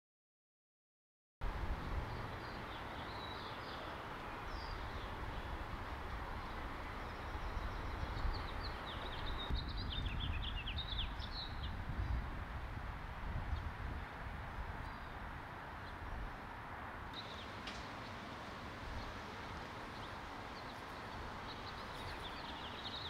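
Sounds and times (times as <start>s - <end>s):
small birds chirping: 2.0s - 12.4s, 17.1s - 23.0s.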